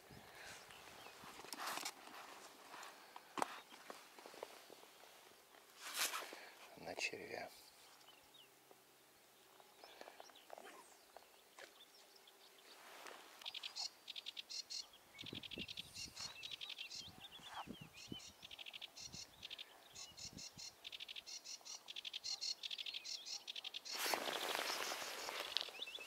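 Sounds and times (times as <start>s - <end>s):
microphone handling rustle: 0.3s - 6.6s, 23.9s - 26.0s
small birds trilling: 9.3s - 26.0s.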